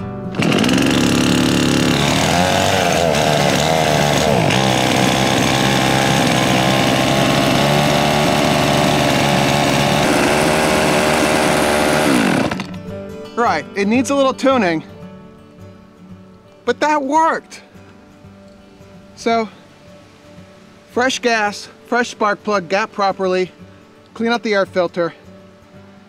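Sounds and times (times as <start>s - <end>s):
chainsaw engine idling: 0.3s - 12.8s
person speaking: 20.9s - 25.2s.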